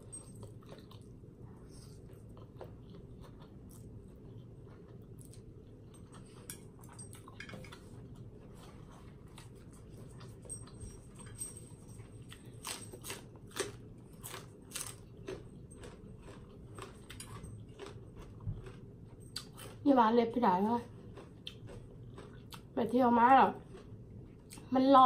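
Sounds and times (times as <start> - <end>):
chewing noodles: 0.0 - 11.4, 12.0 - 19.9, 20.8 - 22.8.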